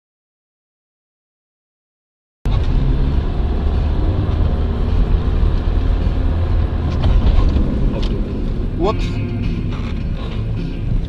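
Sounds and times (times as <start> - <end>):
car engine and road noise: 2.5 - 11.0.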